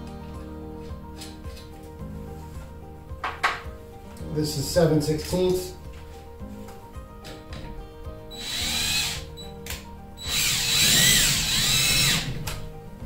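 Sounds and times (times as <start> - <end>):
cordless drill driving a bolt: 8.3 - 9.3, 10.2 - 12.4.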